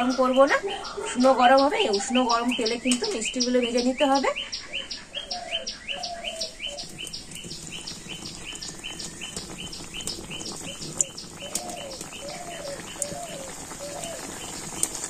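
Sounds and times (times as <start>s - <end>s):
birds chirping: 0.0s - 15.0s
lower arched bird calls: 0.0s - 15.0s
dough frying in oil: 6.1s - 15.0s.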